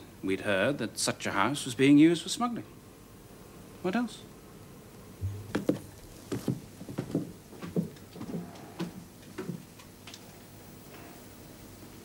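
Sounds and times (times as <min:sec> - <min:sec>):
light knocks and taps: 0:05.2 - 0:08.3.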